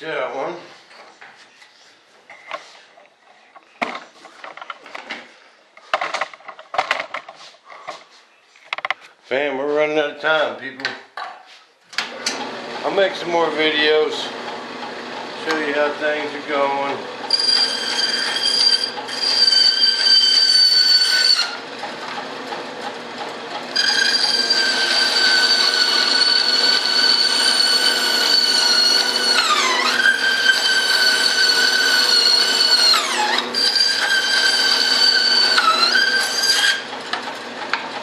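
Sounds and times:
band saw cutting wood: 12.3s - 38.0s.

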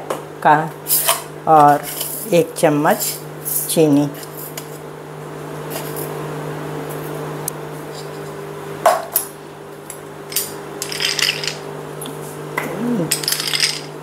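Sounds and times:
steady low hum: 0.0s - 14.0s
kitchenware clinking: 10.3s - 11.6s, 13.1s - 14.0s.

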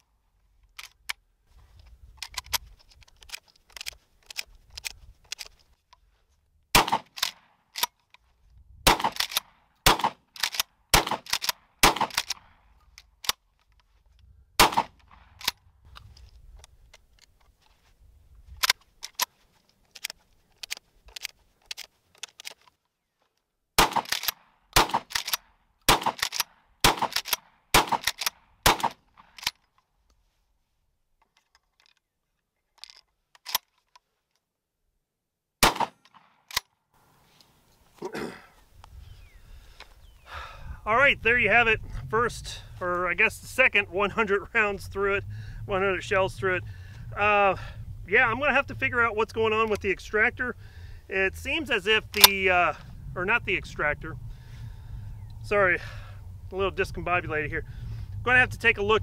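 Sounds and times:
shotgun shells clicking into magazine: 9.1s - 9.4s, 10.3s - 13.8s, 24.0s - 24.4s, 25.0s - 25.4s, 26.2s - 26.5s, 27.1s - 27.4s, 28.0s - 28.4s, 29.3s - 29.7s, 32.8s - 34.0s.

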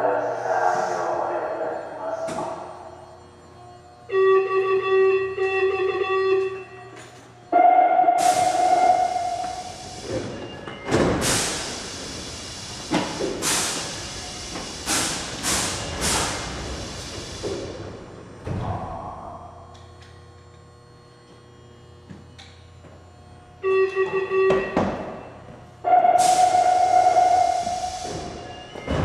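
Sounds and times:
steady low hum: 0.0s - 29.0s
short electronic tone: 4.0s - 10.6s, 23.6s - 29.0s.

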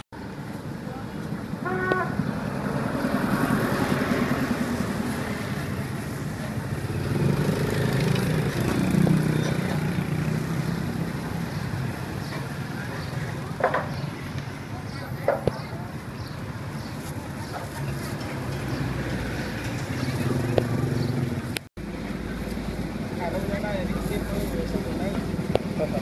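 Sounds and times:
street noise hum: 0.0s - 26.0s
motorbike engines passing: 0.2s - 26.0s.

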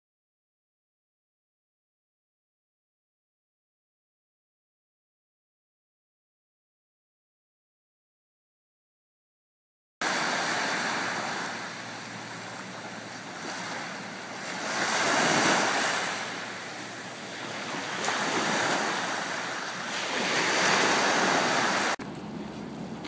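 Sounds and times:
small waves breaking on shore: 10.0s - 23.0s.

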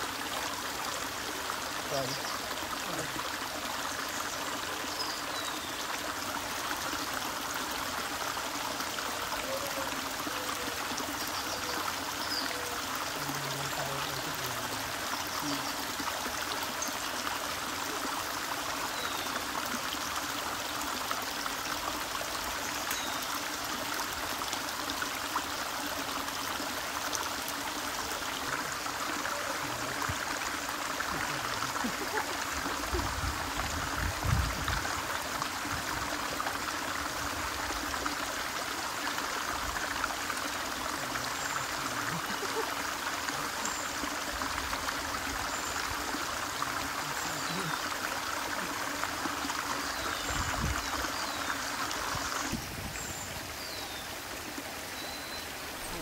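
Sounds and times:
stream flowing over rocks: 0.0s - 56.0s.

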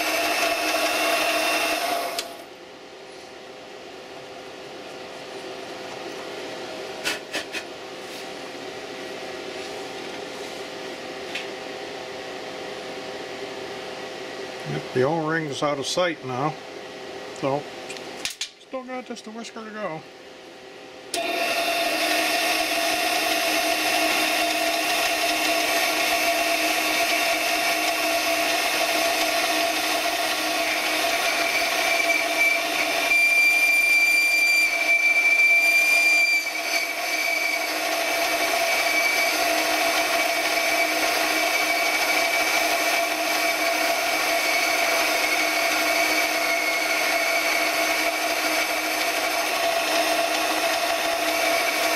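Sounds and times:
metal lathe running with whine: 0.0s - 2.5s, 21.1s - 51.9s.

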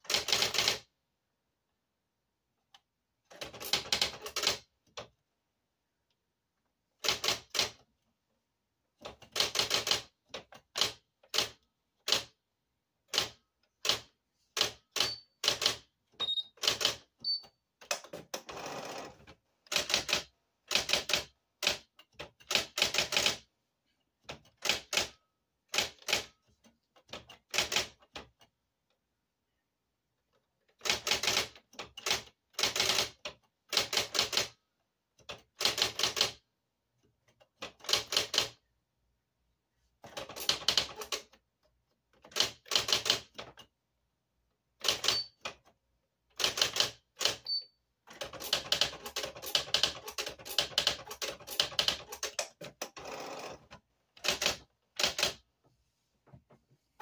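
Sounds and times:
electric typewriter keystrikes: 13.1s - 17.2s, 40.1s - 41.3s, 44.8s - 45.6s, 48.1s - 53.6s, 54.2s - 55.4s.

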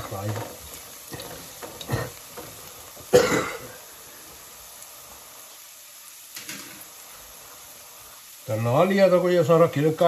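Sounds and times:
onions frying in oil: 0.0s - 10.0s
person coughing: 3.1s - 3.8s.

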